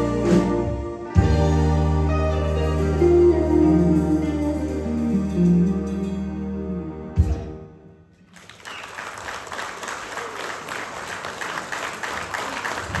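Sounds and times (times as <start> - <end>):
audience applauding: 8.2 - 13.0.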